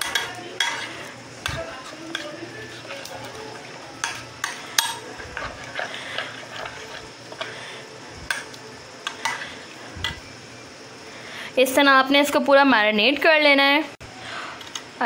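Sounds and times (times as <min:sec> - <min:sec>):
spoon scraping thick marinade: 0:00.0 - 0:10.3
spoon clinking on glass: 0:04.0 - 0:05.5.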